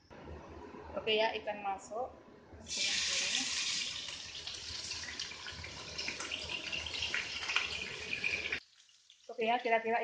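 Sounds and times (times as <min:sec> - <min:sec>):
fish sizzling in hot oil: 0:02.7 - 0:09.4
oil popping and crackling: 0:02.8 - 0:09.4.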